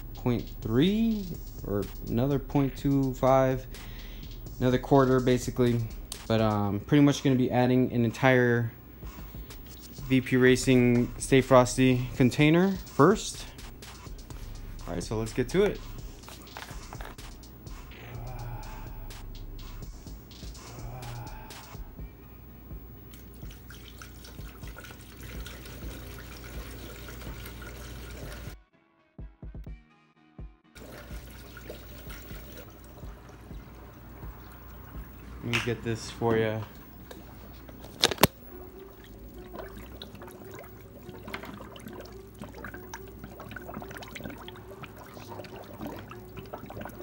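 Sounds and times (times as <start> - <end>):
liquid pouring into a funnel: 23.1 - 28.6, 30.8 - 47.0
bubbles popping: 36.6 - 47.0.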